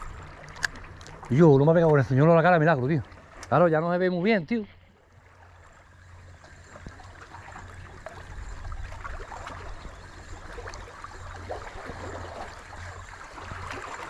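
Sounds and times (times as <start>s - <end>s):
sea water washing and gurgling: 0.0s - 14.0s
small splashes: 4.8s - 14.0s.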